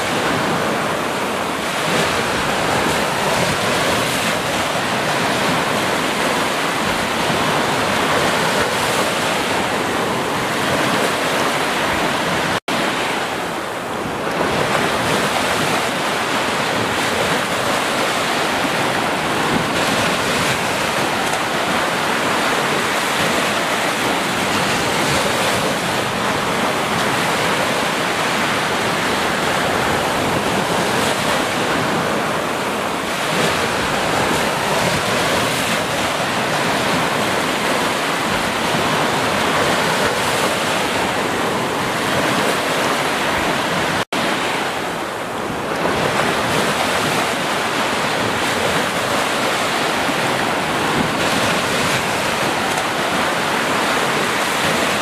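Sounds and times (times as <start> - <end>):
ocean surf breaking on beach: 0.0 - 55.0.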